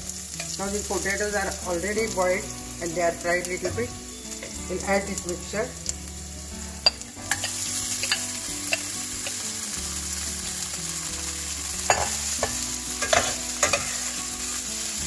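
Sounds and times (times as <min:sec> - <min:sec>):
food sizzling in hot fat: 0:00.0 - 0:15.0
metal spatula scraping pan: 0:06.8 - 0:09.5, 0:11.8 - 0:14.6.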